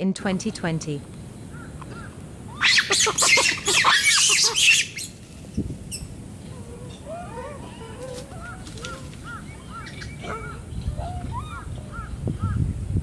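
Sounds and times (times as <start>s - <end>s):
rapid shrill animal calls: 1.5s - 10.6s.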